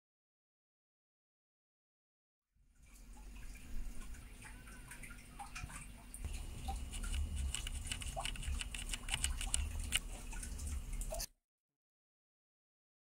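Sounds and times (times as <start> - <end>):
mechanical keyboard typing: 6.6 - 10.0.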